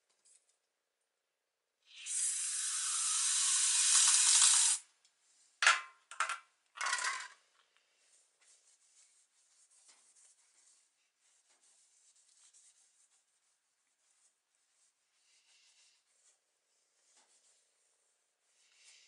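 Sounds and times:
aerosol can spraying: 0:02.0 - 0:04.8.

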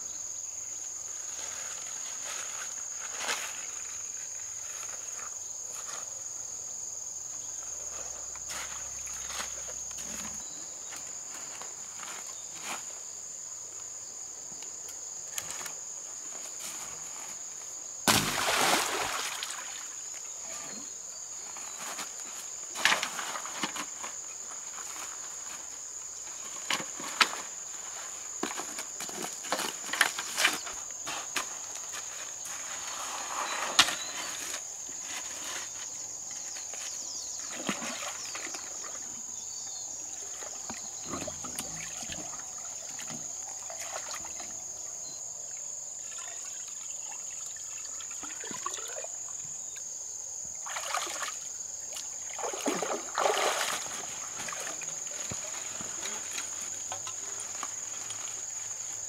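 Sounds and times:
water splashing and trickling: 0:18.0 - 0:20.9, 0:37.4 - 0:39.2, 0:40.2 - 0:45.0, 0:46.0 - 0:49.6, 0:50.5 - 0:58.4.

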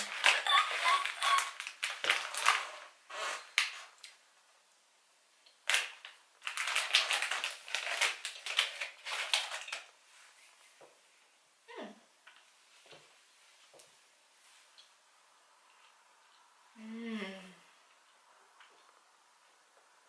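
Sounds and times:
cookie wrapper crinkling: 0:00.0 - 0:04.2, 0:05.5 - 0:10.0.

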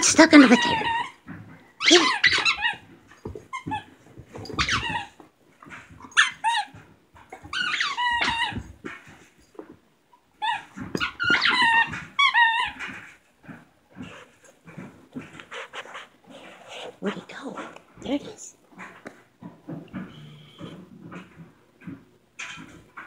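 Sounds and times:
dog whining: 0:00.0 - 0:05.2, 0:06.0 - 0:08.9, 0:10.4 - 0:14.3.

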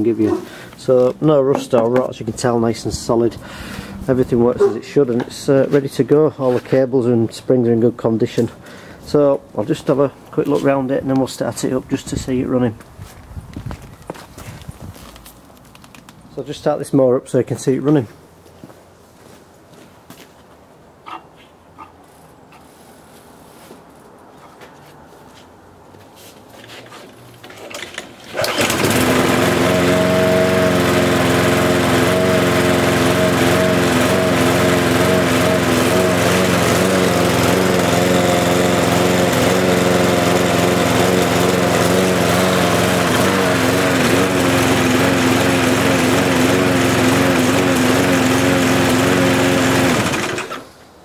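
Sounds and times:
lawn mower engine running: 0:00.0 - 0:06.8, 0:27.4 - 0:50.8
lawn mower engine pull-started: 0:00.0 - 0:07.1, 0:27.4 - 0:50.8.

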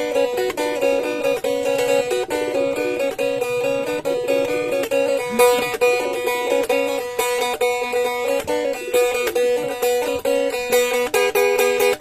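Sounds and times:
plucked lute melody: 0:00.0 - 0:12.0.

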